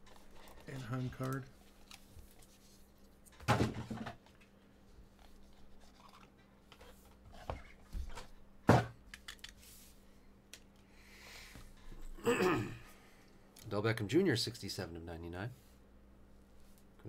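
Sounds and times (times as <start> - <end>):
box set down thunk: 3.4 - 4.2.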